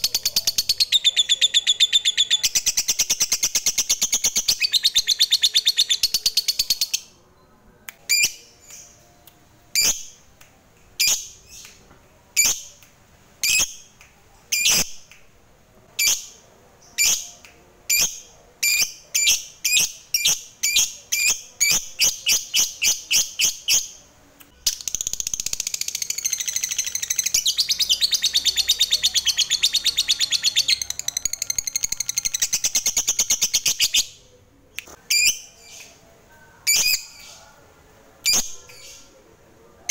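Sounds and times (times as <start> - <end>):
lovebird chirping and trilling: 9.7 - 10.2.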